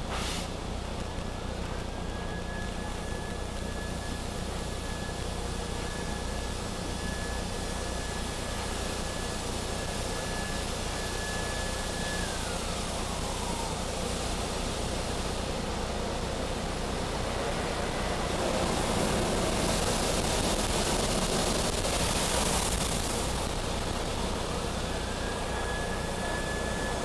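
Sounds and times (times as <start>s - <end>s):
high machinery whine: 0.0s - 27.0s
car wash water spraying: 7.4s - 26.8s.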